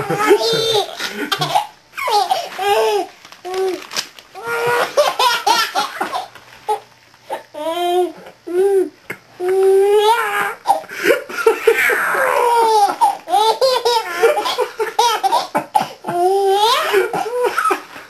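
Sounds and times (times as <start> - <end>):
baby laughing: 0.0 - 3.1, 4.4 - 6.8, 11.4 - 17.8.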